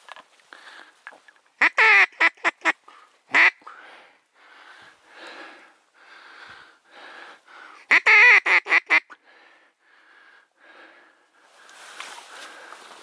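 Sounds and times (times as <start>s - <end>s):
duck quacking: 1.6s - 3.6s, 7.8s - 9.2s
waders swishing through grass and water: 11.6s - 13.0s.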